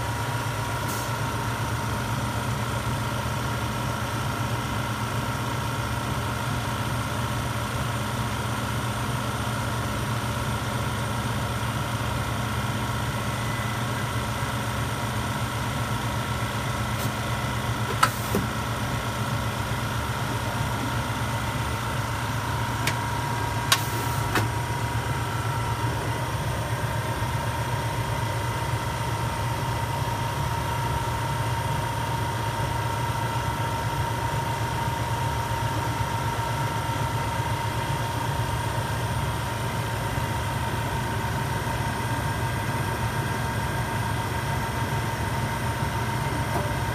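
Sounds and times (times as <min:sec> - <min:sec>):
machine mechanical hum: 0:09.7 - 0:46.9.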